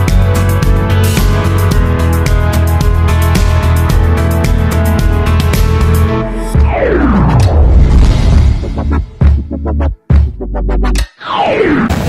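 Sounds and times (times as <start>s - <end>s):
music with steady drum beat: 0.0s - 6.0s.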